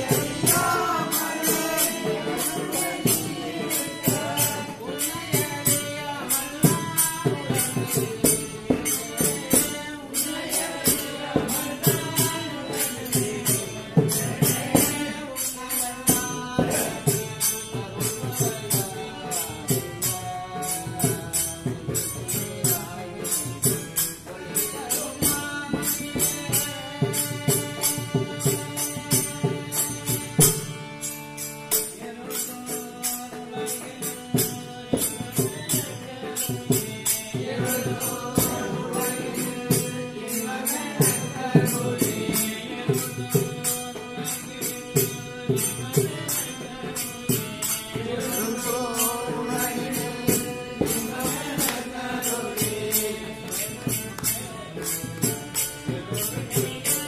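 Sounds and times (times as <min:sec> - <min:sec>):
group chanting a devotional song: 0:00.0 - 0:57.0
percussion steady beat: 0:00.0 - 0:57.0.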